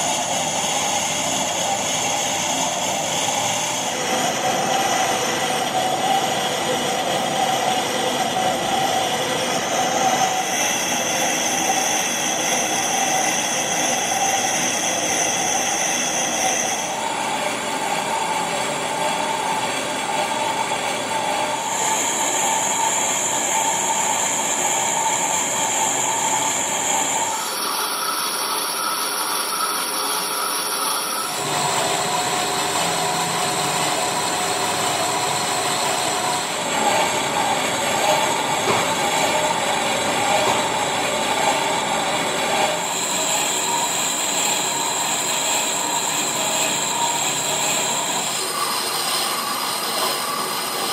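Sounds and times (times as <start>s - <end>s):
lathe cutting tool whine: 0.0s - 50.9s
lathe mechanical drone: 0.0s - 50.9s.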